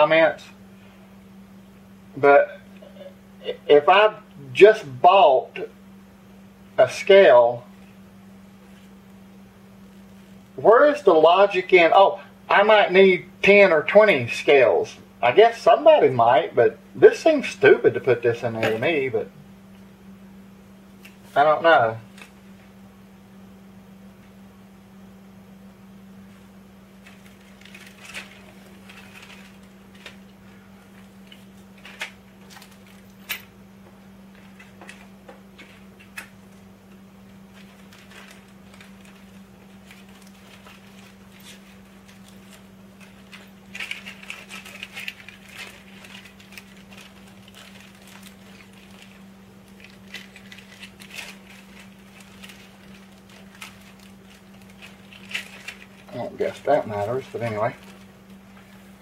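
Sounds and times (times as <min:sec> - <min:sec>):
steady low hum: 0:00.0 - 0:59.0
plastic bags crinkling: 0:27.0 - 0:33.2, 0:37.3 - 0:58.9.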